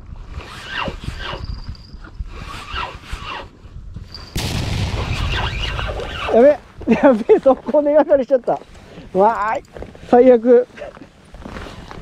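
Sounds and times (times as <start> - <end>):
birds calling: 5.0 - 6.8.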